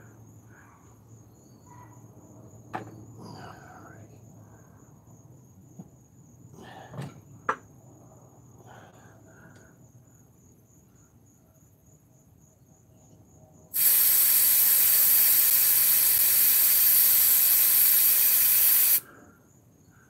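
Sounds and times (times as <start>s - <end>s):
compressed air hissing at tire valve: 13.7s - 19.1s.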